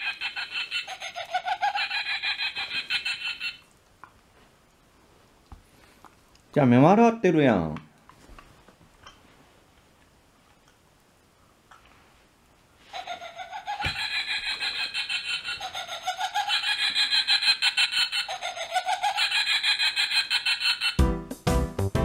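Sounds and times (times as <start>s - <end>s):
toy playing recorded laughter: 0.0s - 3.7s, 12.9s - 21.0s.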